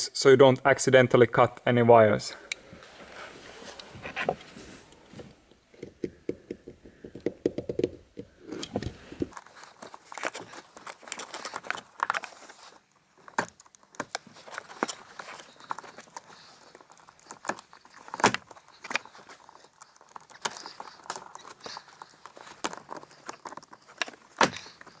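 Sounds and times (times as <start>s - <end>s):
knife cutting wire sheathing: 9.3s - 25.0s.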